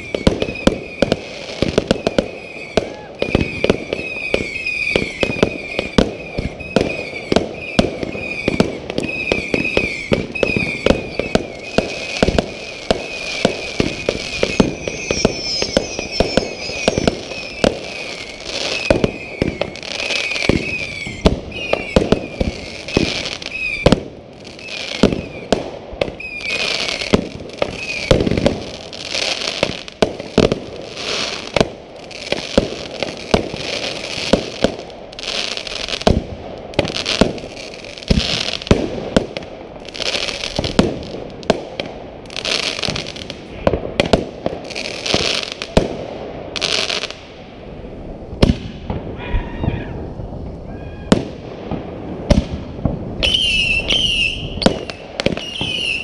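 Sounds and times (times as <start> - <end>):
fireworks bangs: 0.0 - 56.0
fireworks crackling: 0.0 - 56.0
wavering high tone: 14.7 - 17.6.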